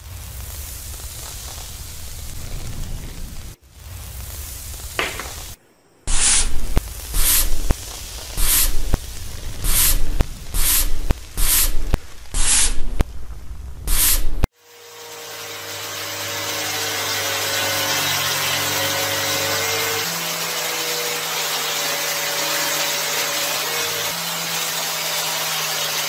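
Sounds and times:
low rumble: 0:00.0 - 0:05.6, 0:06.4 - 0:14.5.

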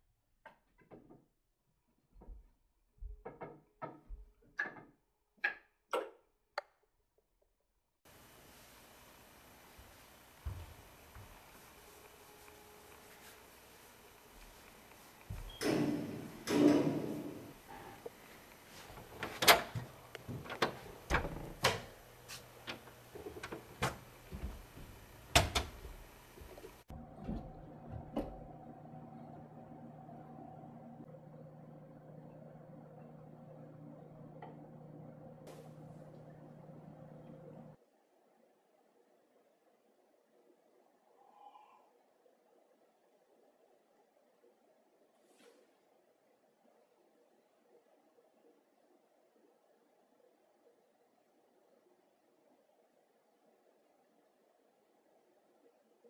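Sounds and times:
steady hiss: 0:08.1 - 0:26.9.

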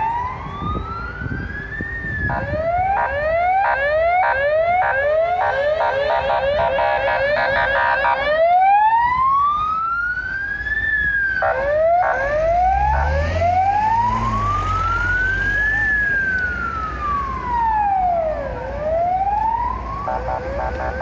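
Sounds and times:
short siren blasts: 0:00.0 - 0:09.4
police siren wailing: 0:00.0 - 0:21.0.

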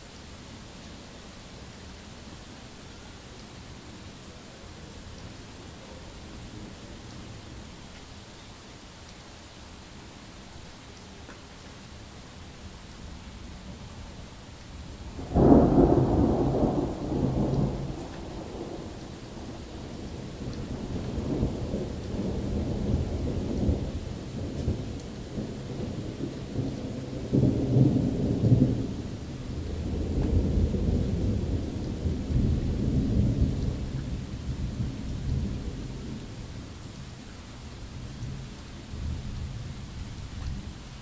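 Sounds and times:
steady rain: 0:00.0 - 0:41.0
rolling thunder: 0:15.1 - 0:36.2.

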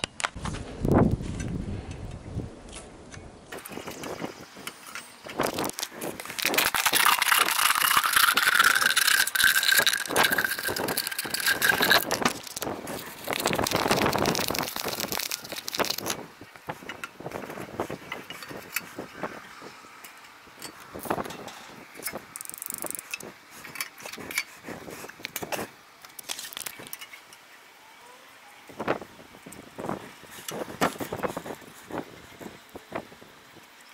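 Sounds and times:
plastic bag crinkling: 0:05.4 - 0:16.2.

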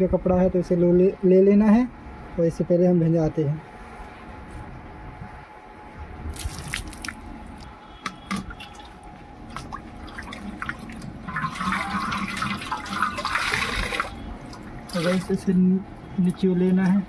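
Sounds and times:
cloth squished in water: 0:06.3 - 0:07.7, 0:08.4 - 0:15.5
water splashes and drips: 0:06.3 - 0:15.5.

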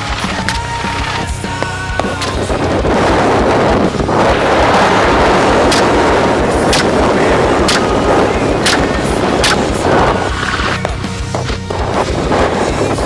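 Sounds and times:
helicopter rotor noise: 0:00.0 - 0:13.0
wind: 0:00.0 - 0:13.0
gunshots: 0:04.2 - 0:12.0.

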